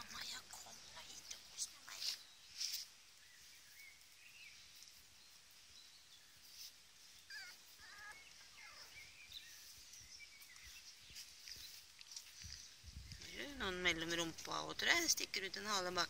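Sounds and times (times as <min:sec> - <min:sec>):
faint squeaky animal calls: 0:07.3 - 0:09.1.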